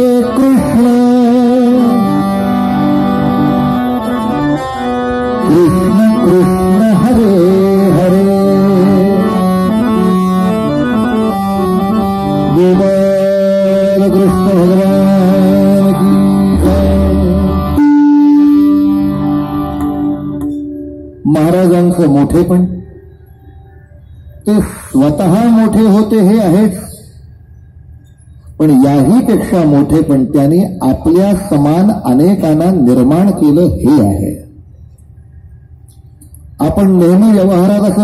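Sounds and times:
harmonium: 0.0 - 38.0
person singing: 12.5 - 19.1.

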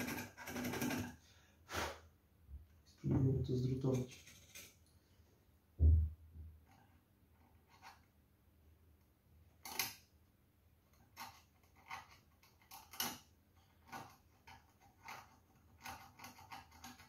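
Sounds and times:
fingers twisting wire scrapes: 0.0 - 1.2, 3.9 - 4.8, 10.9 - 17.0.

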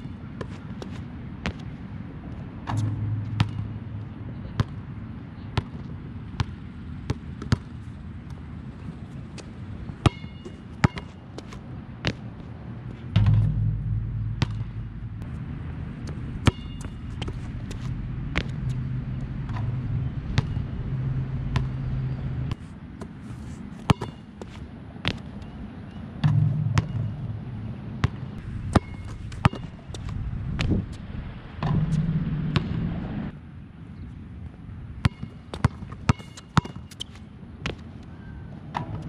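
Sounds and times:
low hum: 2.4 - 4.6, 12.8 - 22.6, 26.2 - 33.4
basketball bouncing: 2.7 - 4.0, 13.2 - 22.6, 26.2 - 29.9, 35.0 - 37.0.

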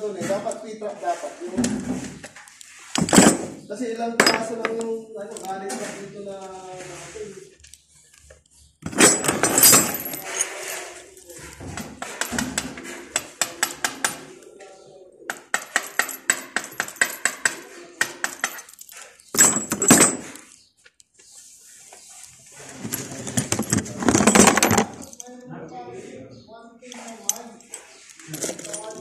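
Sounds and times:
metallic scraping on pipe: 5.7 - 13.6.

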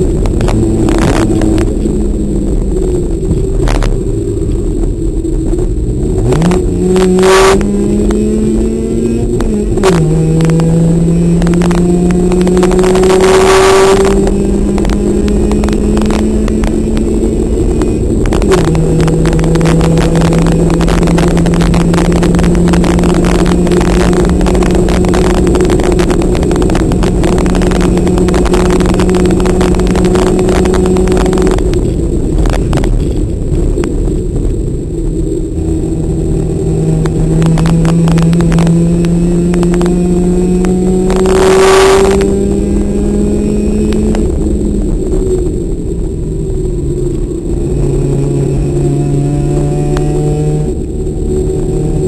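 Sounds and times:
race car engine at high revs: 0.0 - 52.0.

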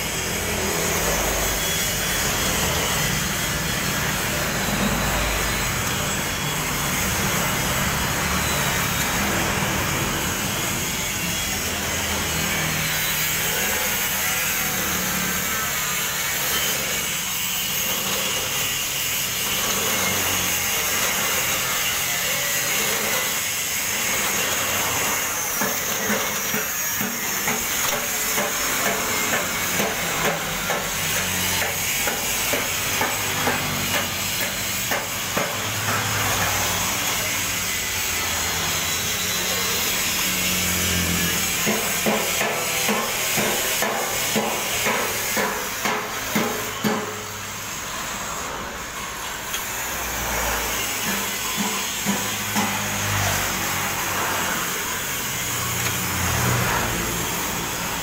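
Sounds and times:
slicing machine humming: 0.0 - 58.0.

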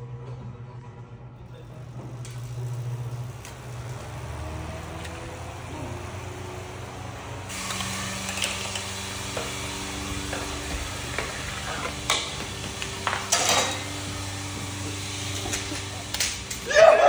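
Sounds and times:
electric fans humming: 0.2 - 17.0
toy car on plastic track: 1.9 - 13.9.

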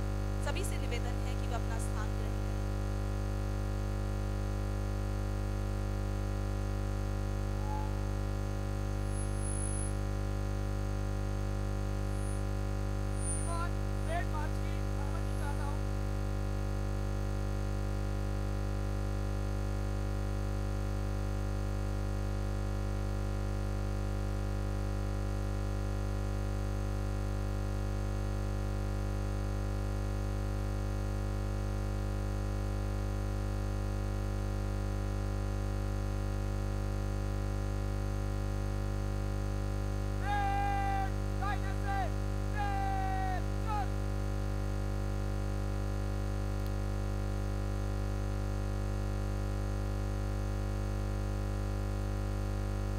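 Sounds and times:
electronic drone: 7.3 - 10.1, 12.0 - 15.8.

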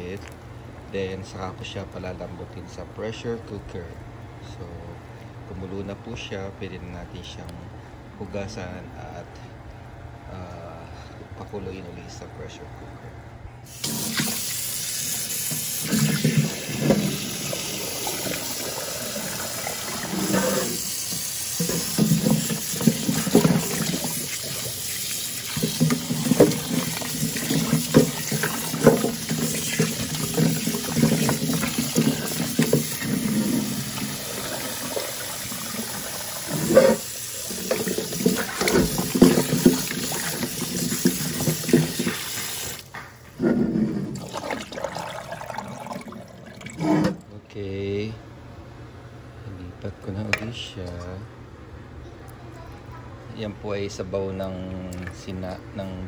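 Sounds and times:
tap running into steel bowl: 15.4 - 34.1, 36.5 - 43.0
water sloshing and knocking: 15.4 - 47.3.

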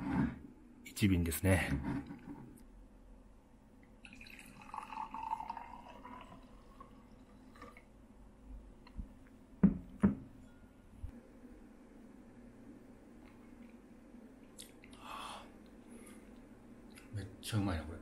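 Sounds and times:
liquid pouring into glass: 4.0 - 7.9.

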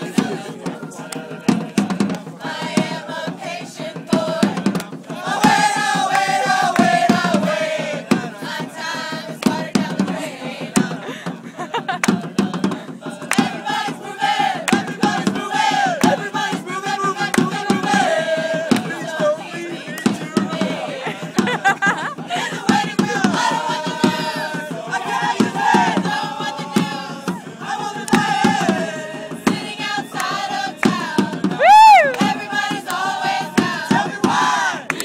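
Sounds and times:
choir singing: 0.0 - 35.0
sharp percussive hits: 9.2 - 35.0.

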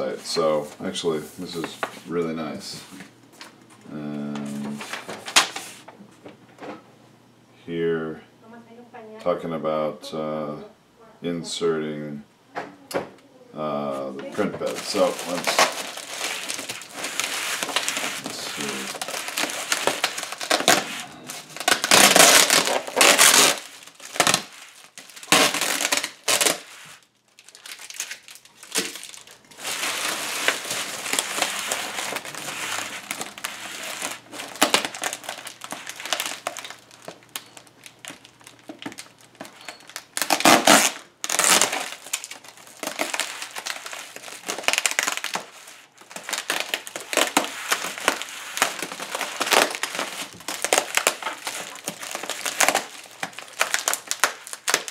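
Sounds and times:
bubble wrap crinkling: 0.0 - 5.9, 13.9 - 54.9.

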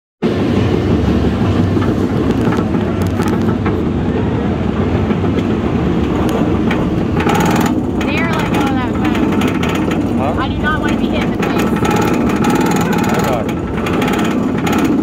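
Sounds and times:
roller coaster lift chain clatter: 0.3 - 15.0.

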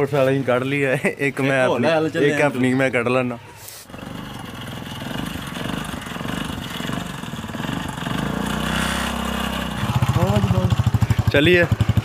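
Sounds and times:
small motorcycle engine running: 3.9 - 12.0.

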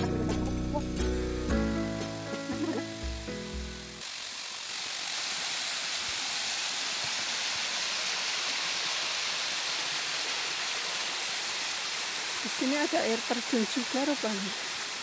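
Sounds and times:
background music: 0.0 - 4.0
waterfall water rushing: 2.0 - 15.0.

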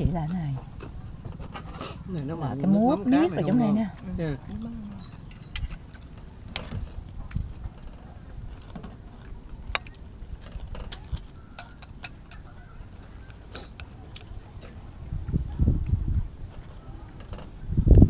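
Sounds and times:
tableware clinking: 11.6 - 12.5.

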